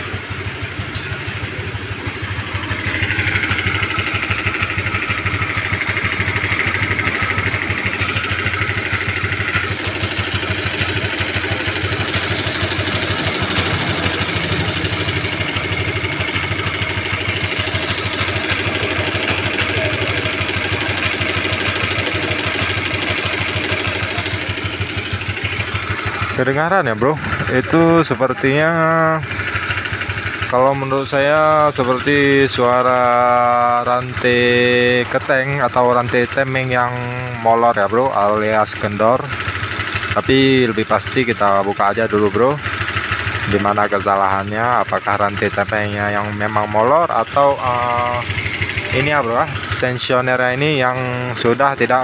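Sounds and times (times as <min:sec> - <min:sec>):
engine rattle: 0:00.0 - 0:52.0
motorcycle engine idling: 0:00.0 - 0:52.0.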